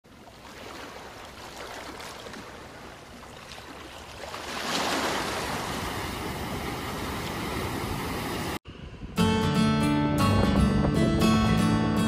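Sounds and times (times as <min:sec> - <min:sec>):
surf washing against rocks: 0:00.1 - 0:08.6.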